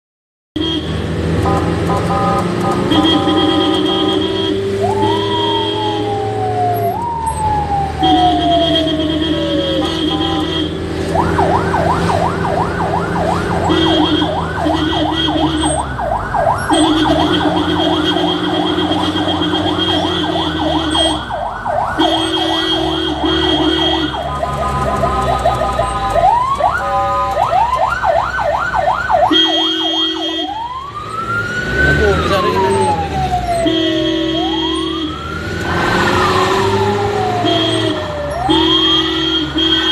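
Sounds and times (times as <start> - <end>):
horn blasts: 0.6 - 6.0, 8.0 - 11.0, 13.6 - 15.9, 16.7 - 21.3, 22.0 - 26.2, 26.8 - 27.5, 29.2 - 30.6, 33.5 - 35.2, 37.3 - 39.9
ambulance siren: 1.4 - 39.9.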